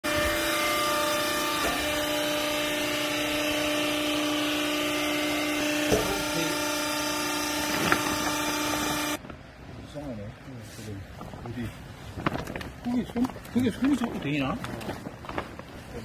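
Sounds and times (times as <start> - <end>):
hydraulic motor and pump hum: 0.0 - 10.1.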